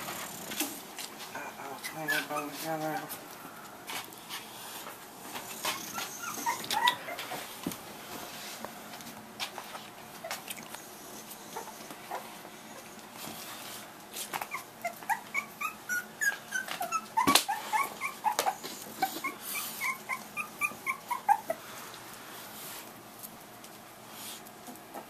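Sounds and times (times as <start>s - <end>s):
puppy whimpering: 1.4s - 3.1s, 5.6s - 7.5s, 11.5s - 12.9s, 14.4s - 21.6s.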